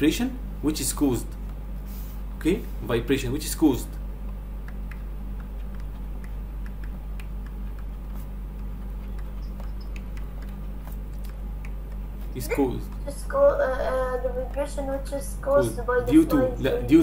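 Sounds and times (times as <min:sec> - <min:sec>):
electrical mains hum: 0:00.0 - 0:17.0
faint ticks and clicks: 0:03.9 - 0:13.2, 0:14.2 - 0:15.6.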